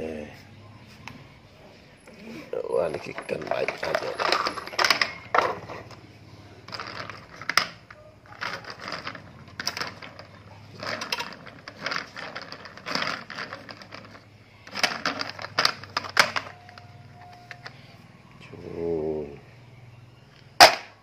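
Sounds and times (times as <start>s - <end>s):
plastic toys rattling on wood: 2.6s - 17.8s.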